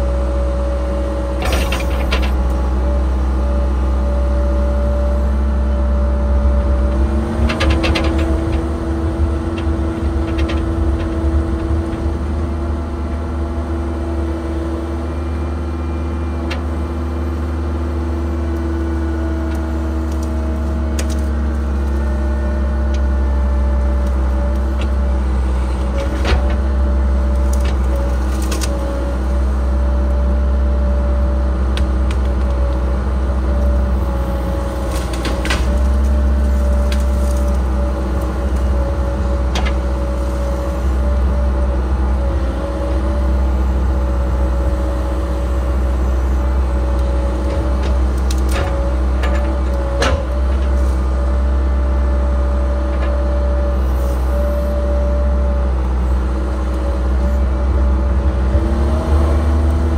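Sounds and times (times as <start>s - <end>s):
excavator diesel engine droning: 0.0s - 59.9s
sharp cracks and knocks: 27.5s - 28.8s, 34.9s - 37.6s.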